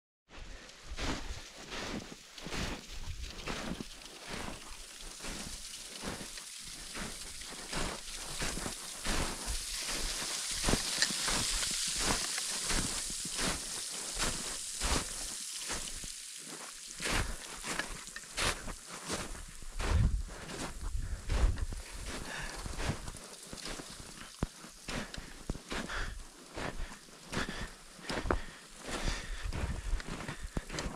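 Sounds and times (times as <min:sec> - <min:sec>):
footsteps crunching in snow: 0:00.3 - 0:30.9
steady hiss: 0:00.7 - 0:30.9.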